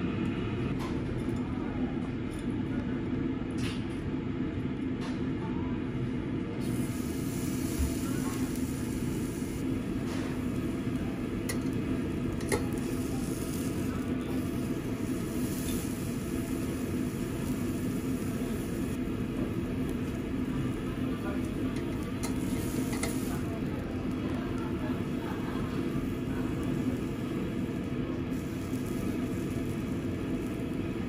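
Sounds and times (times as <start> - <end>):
steady low hum: 0.0 - 31.0
beef sizzling on a grill: 6.6 - 31.0.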